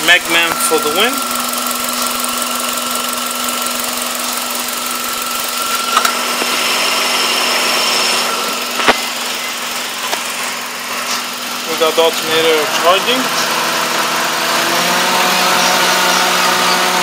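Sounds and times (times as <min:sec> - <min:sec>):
car engine idling: 0:00.0 - 0:17.0
high alternator whine: 0:00.0 - 0:17.0.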